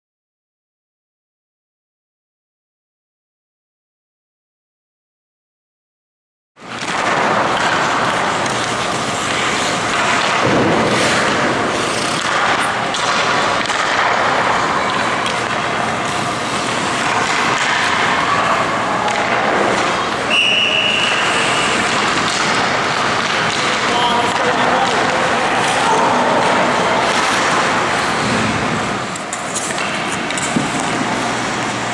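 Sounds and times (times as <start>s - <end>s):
skates scraping ice: 6.6s - 31.9s
sticks and pucks knocking: 6.7s - 20.1s, 21.9s - 28.2s, 29.1s - 31.8s
whistle blast: 20.3s - 21.8s.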